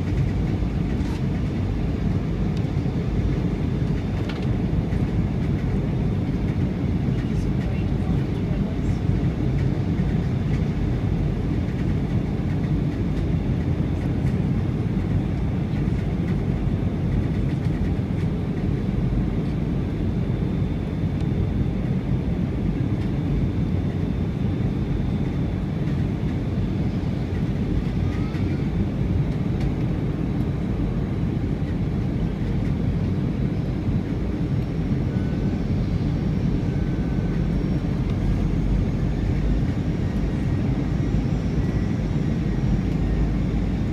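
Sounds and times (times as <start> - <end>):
airliner cabin rumble: 0.0 - 43.9
faint high whine: 19.4 - 43.9.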